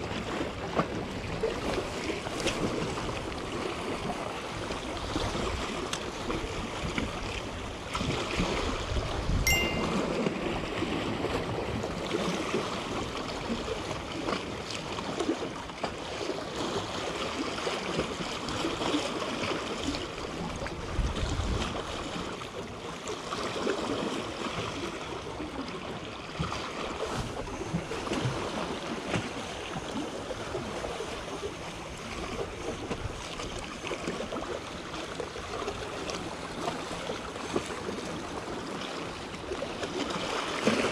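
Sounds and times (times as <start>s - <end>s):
sea waves lapping on rocks: 0.0s - 40.9s
wind buffeting microphone: 8.6s - 9.5s, 20.8s - 21.8s.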